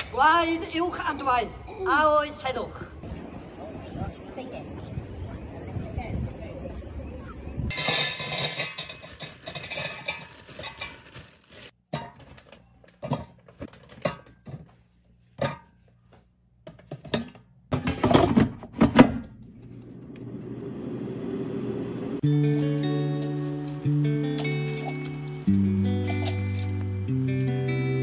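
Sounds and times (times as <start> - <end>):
rustling of food handled: 8.9 - 14.0.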